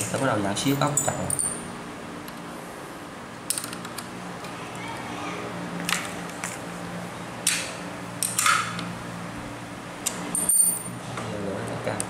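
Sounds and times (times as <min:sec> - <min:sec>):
wrench clinking and scraping on nut: 0:00.7 - 0:01.6, 0:10.4 - 0:10.9.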